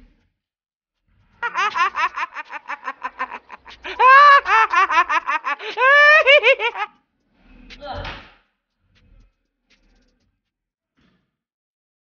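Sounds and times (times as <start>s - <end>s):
man cackling laugh: 1.4s - 6.9s.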